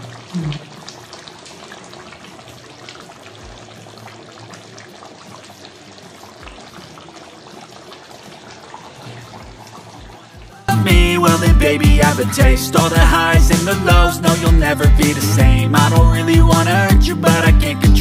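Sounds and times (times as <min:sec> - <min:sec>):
curry bubbling: 0:00.0 - 0:10.7.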